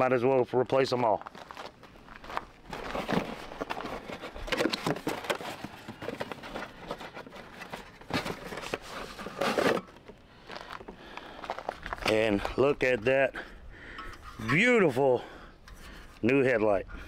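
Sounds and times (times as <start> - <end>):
cardboard box rustling and scraping: 1.4 - 10.8.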